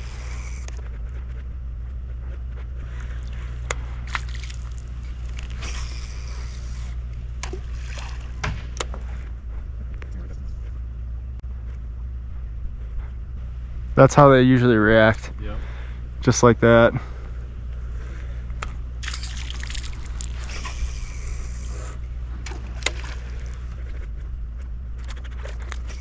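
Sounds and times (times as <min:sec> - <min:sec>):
steady low rumble: 0:00.0 - 0:26.0
water sloshing and splashing: 0:04.0 - 0:06.1, 0:07.4 - 0:09.2, 0:19.0 - 0:21.3, 0:22.4 - 0:24.0.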